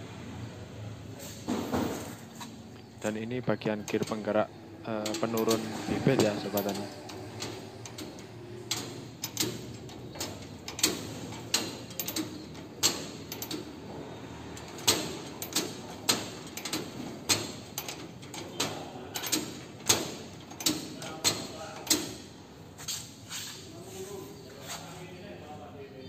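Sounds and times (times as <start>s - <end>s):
metallic ratchet clicks and clacks: 3.8s - 13.9s, 14.5s - 22.3s.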